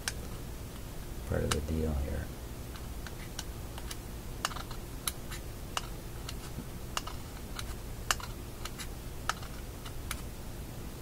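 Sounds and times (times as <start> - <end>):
magnet clicking against metal: 7.0 - 10.3.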